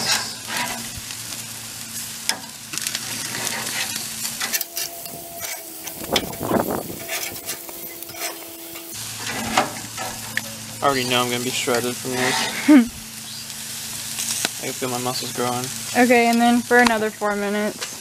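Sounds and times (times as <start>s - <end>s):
chicken sizzling on a grill: 0.0s - 18.0s
metal tongs scraping grates: 2.3s - 12.7s.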